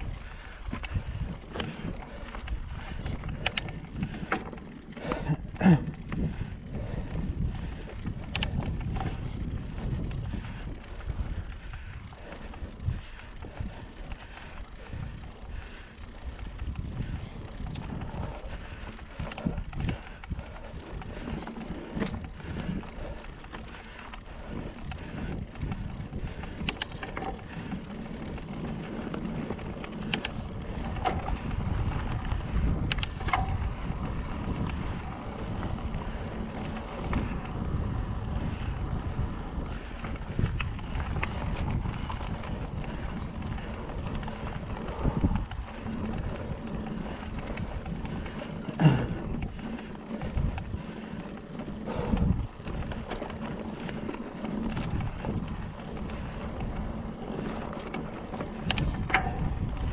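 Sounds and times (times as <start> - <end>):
wind buffeting microphone: 0.0 - 59.9
faint clicks: 0.3 - 5.2, 7.6 - 9.3, 15.6 - 33.9, 39.7 - 59.9.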